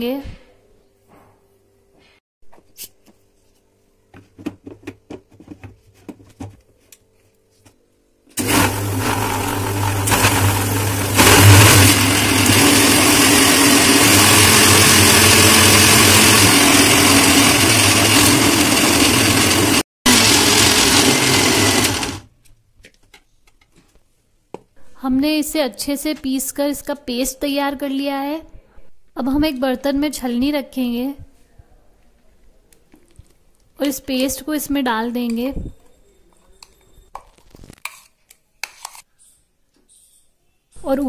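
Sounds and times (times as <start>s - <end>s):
mixer grinder motor running: 8.4s - 22.3s.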